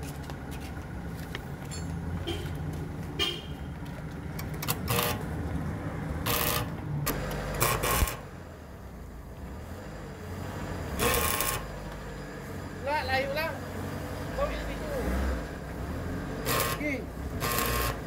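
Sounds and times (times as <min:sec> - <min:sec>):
vehicle engines rumbling: 0:00.0 - 0:18.0
car horn toots: 0:02.2 - 0:02.6, 0:03.2 - 0:03.7.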